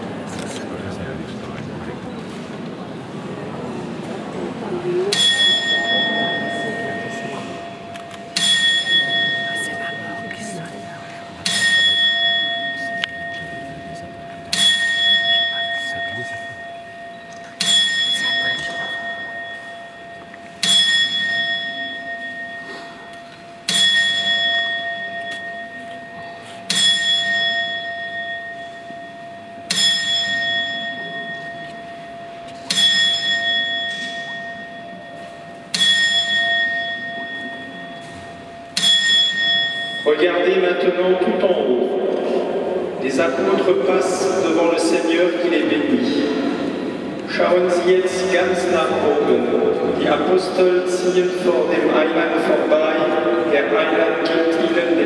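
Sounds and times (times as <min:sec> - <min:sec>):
clock bell strokes ringing: 0:05.1 - 0:55.0.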